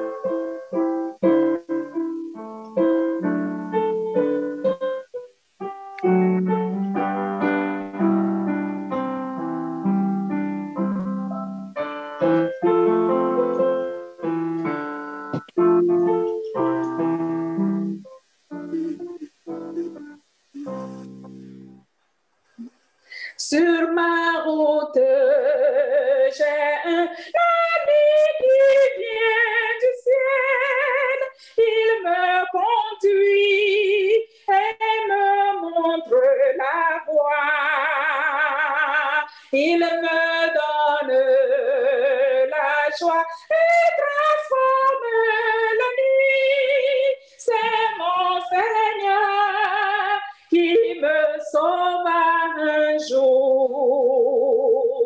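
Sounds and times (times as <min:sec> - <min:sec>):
woman singing hymn unaccompanied: 0:00.0 - 0:04.8, 0:23.2 - 0:55.0.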